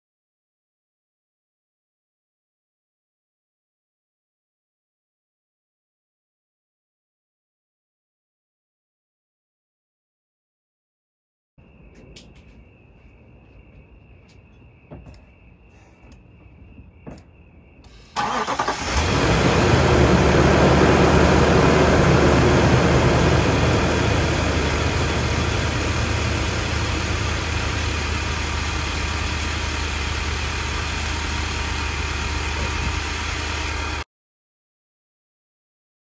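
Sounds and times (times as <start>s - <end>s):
engine idling: 18.0s - 34.0s
engine cranking: 18.1s - 21.4s.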